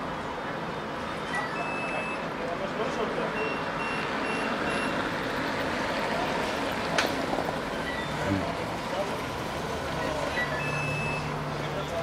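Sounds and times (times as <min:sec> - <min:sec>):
faint high beep: 0:01.3 - 0:02.3, 0:03.4 - 0:05.0, 0:10.4 - 0:11.3.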